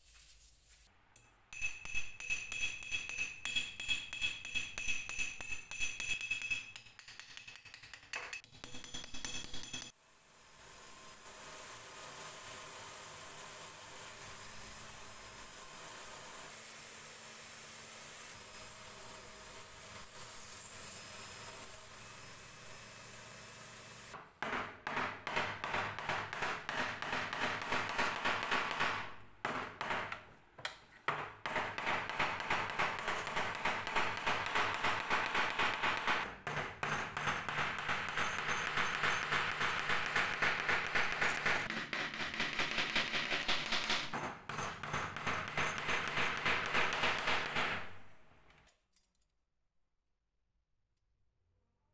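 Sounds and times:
drill with wire brush whining: 0:10.2 - 0:24.1.

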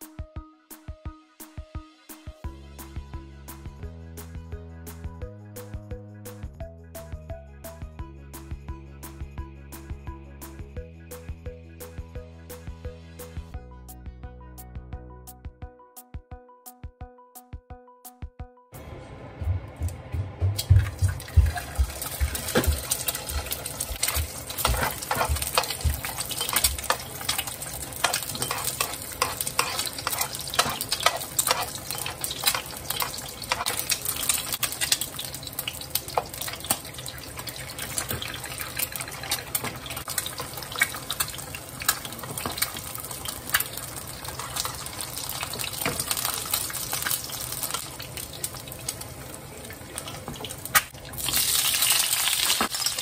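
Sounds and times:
eggs sizzling in oil: 0:21.2 - 0:53.0.

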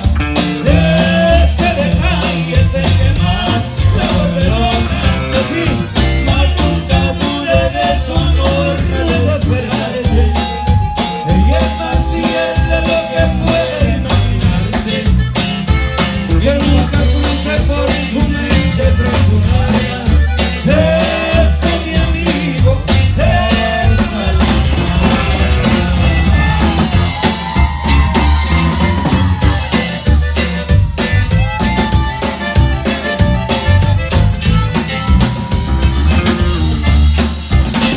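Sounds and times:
drum kit beat: 0:00.0 - 0:37.9
live band playing: 0:00.0 - 0:37.9
person singing: 0:00.6 - 0:30.1.

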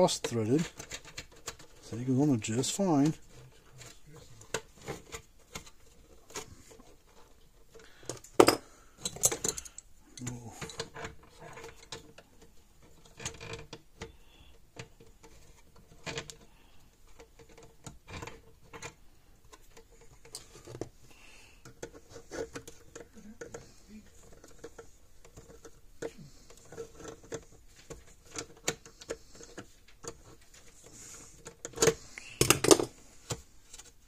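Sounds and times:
tools clicking on plastic parts: 0:07.7 - 0:16.5, 0:31.4 - 0:33.4.

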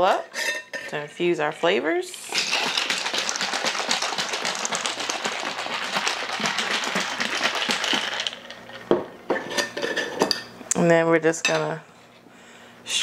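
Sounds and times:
ice rattling in a glass jar: 0:02.2 - 0:08.9.

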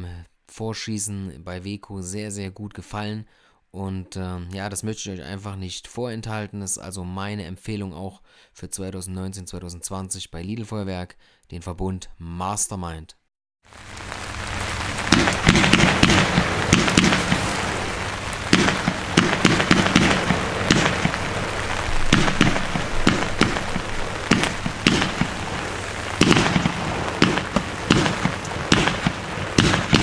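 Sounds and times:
firework crackling: 0:13.7 - 0:30.0
steady hiss: 0:13.7 - 0:30.0
firework launch thumps: 0:14.8 - 0:30.0.

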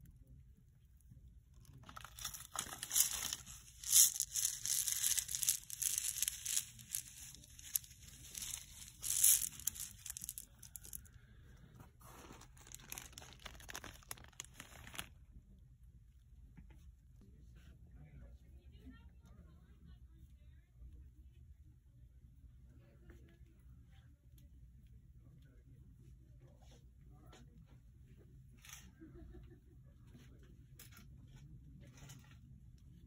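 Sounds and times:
packaging crinkling and rustling: 0:01.6 - 0:11.0, 0:12.1 - 0:15.2.

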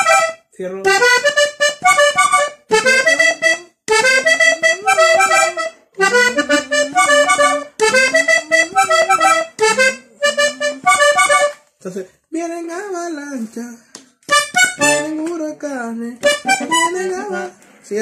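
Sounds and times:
button accordion melody: 0:00.0 - 0:11.7, 0:14.2 - 0:15.4, 0:16.2 - 0:17.6.

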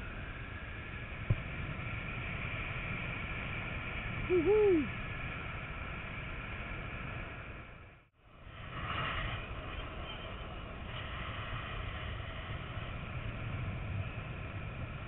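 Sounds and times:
wind rushing over camera: 0:00.1 - 0:07.7.

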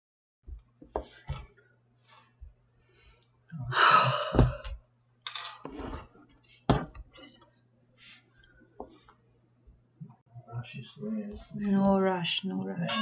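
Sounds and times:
person sighing: 0:03.6 - 0:04.8.

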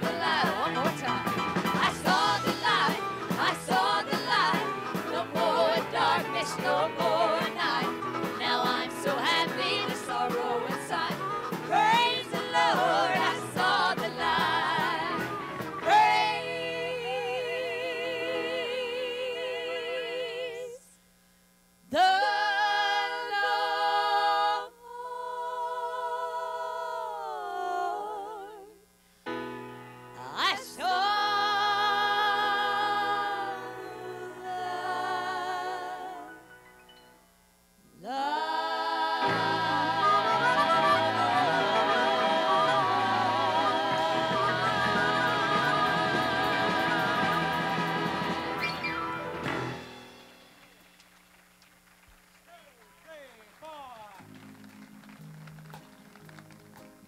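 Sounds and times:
band playing: 0:00.0 - 0:16.7, 0:39.2 - 0:51.2
backing singers in harmony: 0:00.0 - 0:20.8, 0:22.0 - 0:28.7, 0:30.2 - 0:36.4, 0:38.0 - 0:49.9
woman singing lead: 0:00.0 - 0:21.0, 0:21.9 - 0:28.8, 0:30.2 - 0:36.4, 0:38.0 - 0:48.9.

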